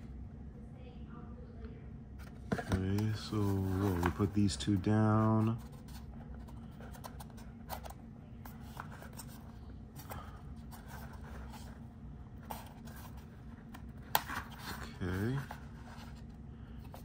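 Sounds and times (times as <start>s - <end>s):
cardboard rubbing and scraping: 2.5s - 7.9s.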